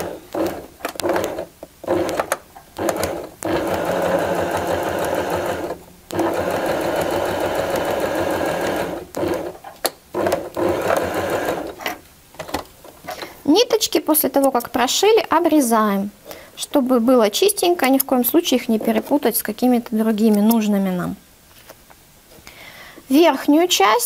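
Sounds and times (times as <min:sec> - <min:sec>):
sewing machine stitching: 0:00.0 - 0:12.0.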